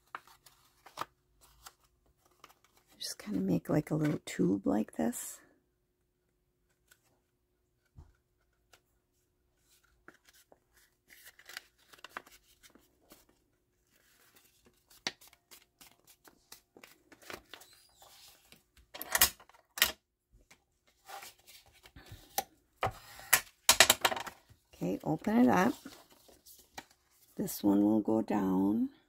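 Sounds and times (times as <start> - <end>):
paper rustling and crinkling: 0.0 - 3.4, 9.6 - 18.9, 24.4 - 27.4.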